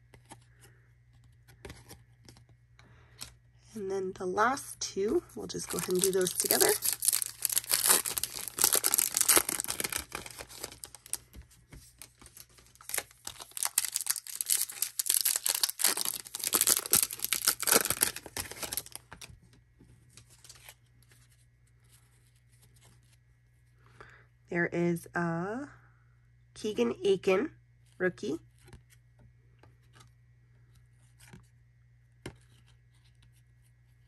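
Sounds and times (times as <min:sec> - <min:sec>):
wrappers tearing and crinkling: 0:05.5 - 0:19.3.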